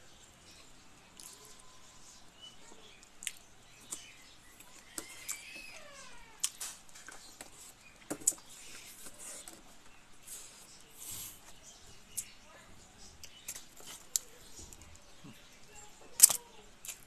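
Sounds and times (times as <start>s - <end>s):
person chewing and eating: 1.1s - 1.6s, 3.0s - 5.4s
faint animal call: 4.7s - 6.6s.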